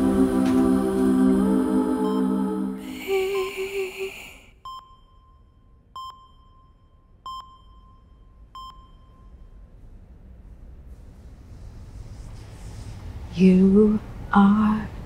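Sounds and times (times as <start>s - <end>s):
slow sung song: 0.0s - 4.4s
patient monitor beeping: 4.6s - 9.5s.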